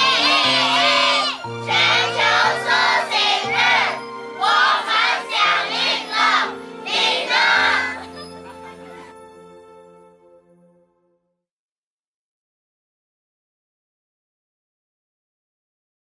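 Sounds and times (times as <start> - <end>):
people shouting in unison: 0.0 - 8.0
background music: 0.0 - 11.4.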